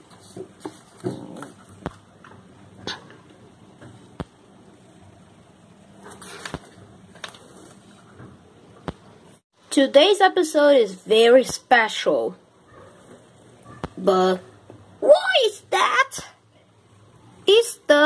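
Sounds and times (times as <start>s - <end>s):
paper rustling: 0.0s - 2.0s, 6.0s - 8.1s.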